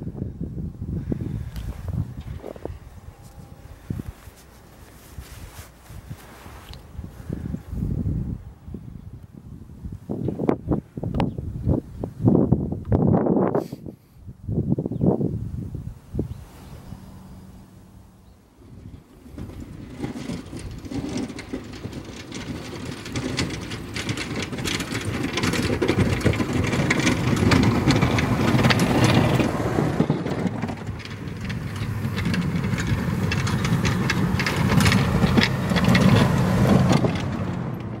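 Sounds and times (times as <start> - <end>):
tyres crunching on packed snow: 1.6 - 7.8, 19.0 - 38.0
truck engine running: 16.8 - 38.0.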